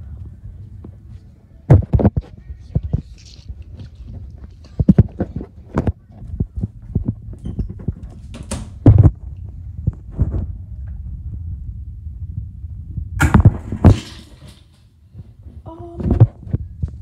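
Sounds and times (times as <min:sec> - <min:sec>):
door knob turning and door opening: 0:07.4 - 0:08.8.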